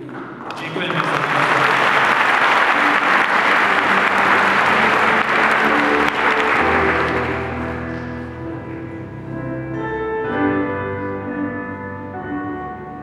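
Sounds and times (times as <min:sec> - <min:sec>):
audience applauding: 0:00.4 - 0:08.8
keyboard playing held notes: 0:01.7 - 0:13.0.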